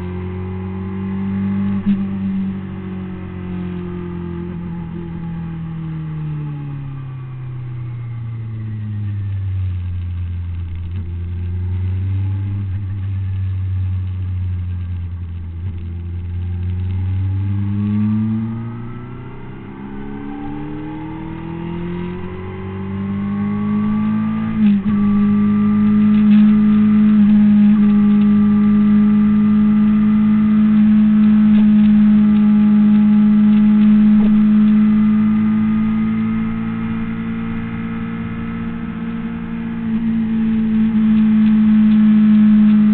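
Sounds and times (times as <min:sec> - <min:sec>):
motorcycle engine revving: 0:10.8 - 0:42.9.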